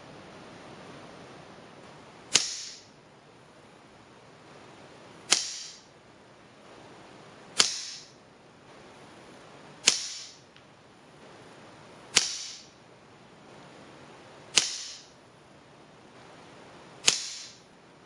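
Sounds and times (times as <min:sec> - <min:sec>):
air rifle shots: 0:02.3 - 0:02.9, 0:05.3 - 0:05.9, 0:07.6 - 0:08.2, 0:09.8 - 0:10.5, 0:12.1 - 0:12.8, 0:14.5 - 0:15.2, 0:17.0 - 0:17.7.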